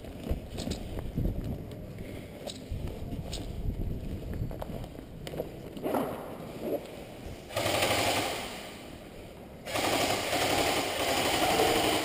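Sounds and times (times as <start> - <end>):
airsoft rifle full-auto burst: 7.5 - 8.8, 9.7 - 12.0.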